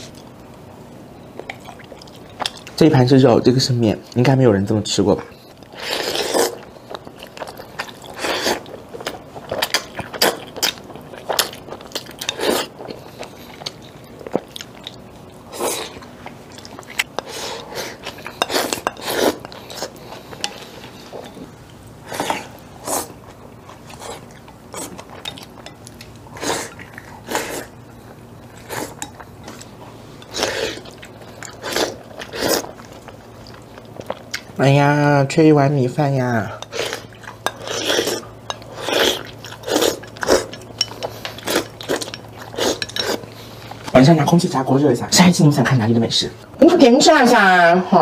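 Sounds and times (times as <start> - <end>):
chewing: 1.3 - 2.8, 5.3 - 34.6, 36.6 - 44.0.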